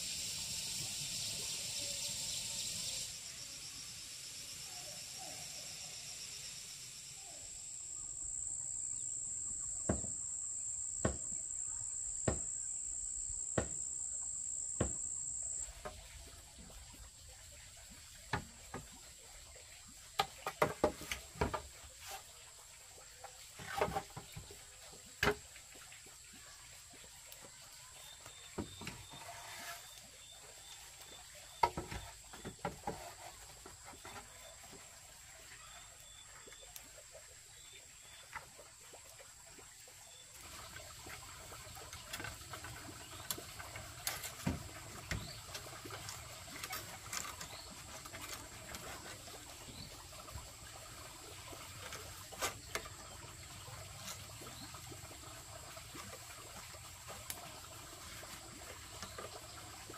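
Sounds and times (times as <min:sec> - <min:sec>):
high-pitched insect drone: 0:00.0 - 0:15.9
sharp knocks: 0:09.9 - 0:10.2, 0:11.0 - 0:11.4, 0:12.2 - 0:12.5, 0:13.6 - 0:13.8.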